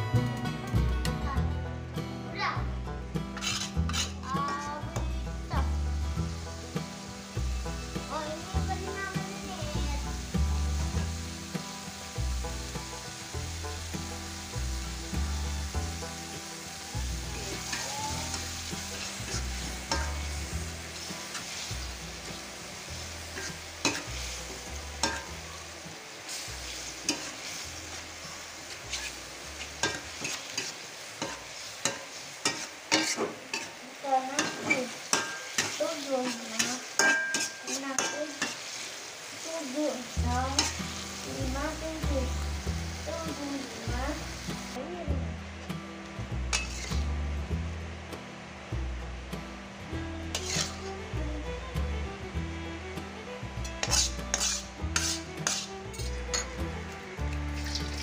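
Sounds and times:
paste sizzling in hot oil: 0:02.4 - 0:44.9, 0:45.7 - 0:47.6, 0:49.4 - 0:58.0
metal spatula scraping wok: 0:03.2 - 0:04.8, 0:06.2 - 0:39.4, 0:40.0 - 0:44.8, 0:46.5 - 0:47.2, 0:50.2 - 0:51.1, 0:53.6 - 0:58.0.

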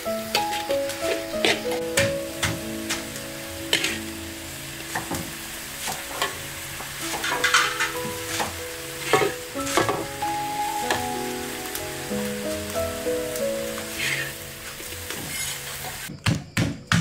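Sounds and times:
soft background music: 0:00.0 - 0:16.1
utensil scraping in pan: 0:00.3 - 0:01.9, 0:02.8 - 0:04.2, 0:05.8 - 0:10.1, 0:15.1 - 0:16.0.

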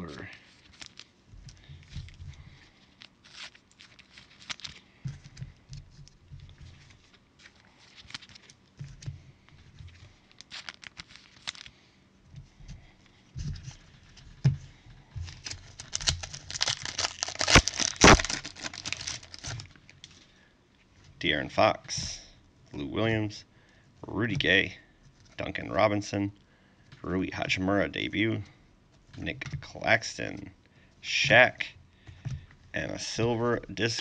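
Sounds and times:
cards rustling and clicking: 0:00.0 - 0:11.8, 0:12.4 - 0:20.2
foil pack crinkling: 0:00.0 - 0:11.8, 0:15.1 - 0:20.3.

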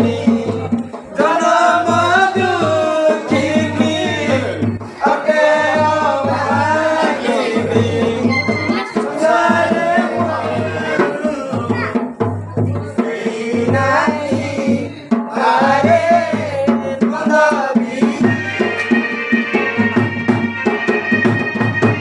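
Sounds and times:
regular drum beat: 0:00.0 - 0:22.0
person singing wavering melody: 0:08.2 - 0:12.0.

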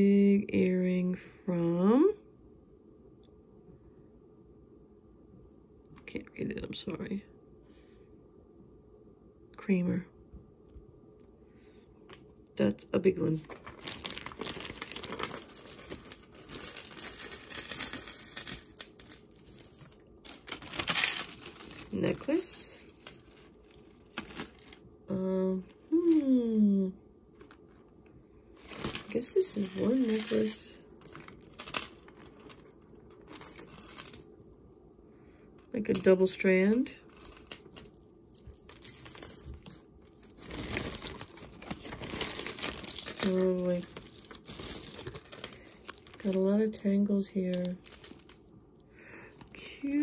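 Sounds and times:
plastic bag crinkling: 0:13.4 - 0:24.8, 0:38.4 - 0:46.5, 0:47.5 - 0:48.4.

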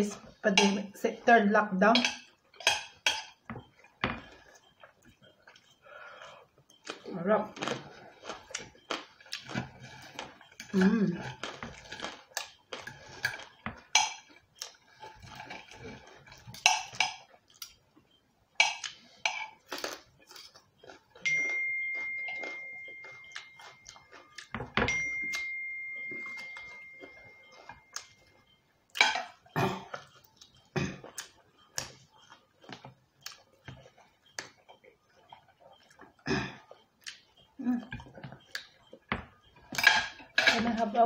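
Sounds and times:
cutlery clinking on plates: 0:02.0 - 0:04.3, 0:15.3 - 0:17.3, 0:29.0 - 0:30.1, 0:39.1 - 0:40.7
high ringing note: 0:21.2 - 0:24.0.

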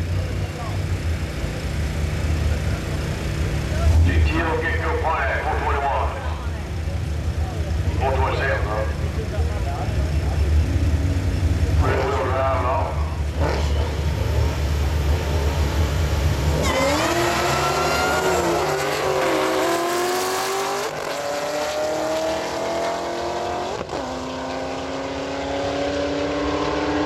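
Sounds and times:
cars accelerating hard: 0:00.0 - 0:27.0
engines rumbling deeply: 0:00.0 - 0:27.0.

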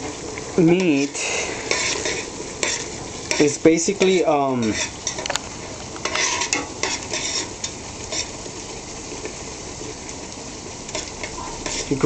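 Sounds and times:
ground beef sizzling in a pot: 0:00.0 - 0:12.0
utensil scraping and knocking pot: 0:00.8 - 0:05.4, 0:06.0 - 0:08.4, 0:10.9 - 0:12.0.

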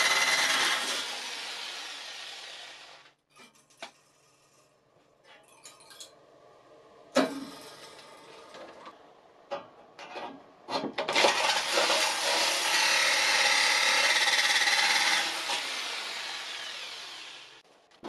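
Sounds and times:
jigsaw cutting metal: 0:00.0 - 0:03.1, 0:11.1 - 0:17.6.

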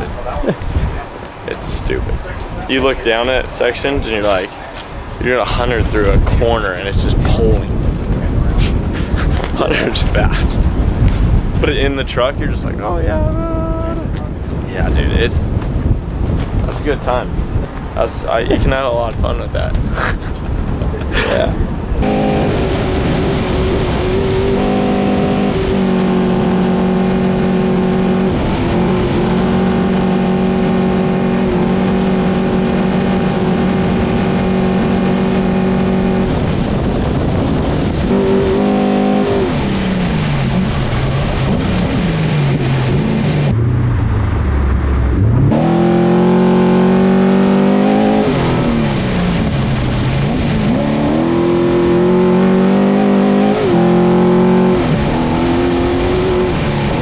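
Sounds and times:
race engine revving: 0:22.0 - 0:57.0.

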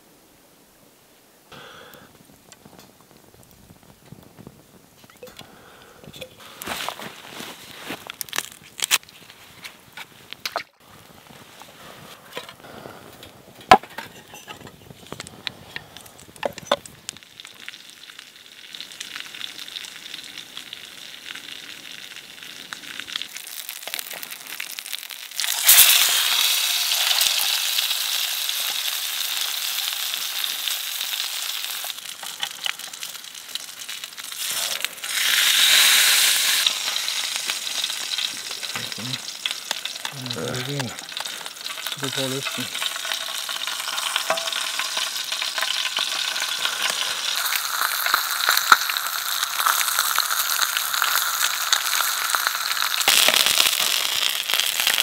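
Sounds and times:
crackling wood fire: 0:01.0 - 0:55.0
fish sizzling in hot oil: 0:14.2 - 0:55.0.

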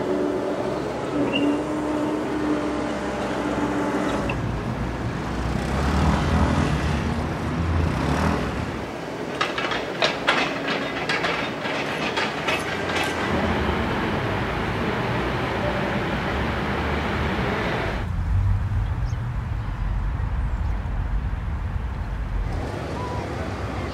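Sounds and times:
vehicle rumble: 0:00.0 - 0:23.9
sharp irregular clattering knocks: 0:09.2 - 0:13.5.

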